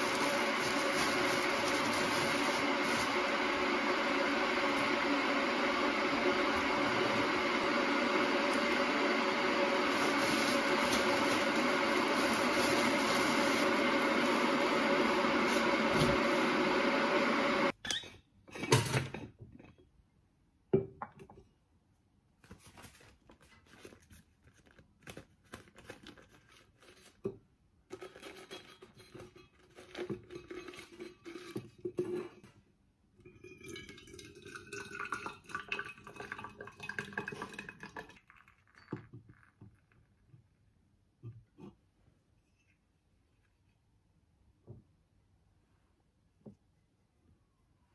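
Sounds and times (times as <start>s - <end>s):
hot water pouring into flask: 0.0s - 17.7s, 33.4s - 40.3s.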